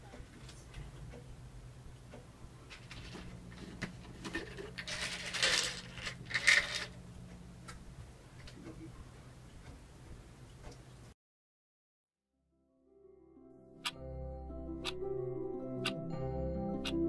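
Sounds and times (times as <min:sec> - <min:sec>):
pills rattling in plastic bottle: 0:04.2 - 0:07.0.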